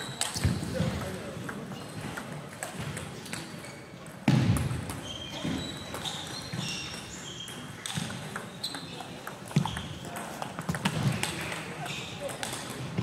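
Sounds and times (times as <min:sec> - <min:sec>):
shoes squeaking on wooden floor: 0:05.0 - 0:10.0.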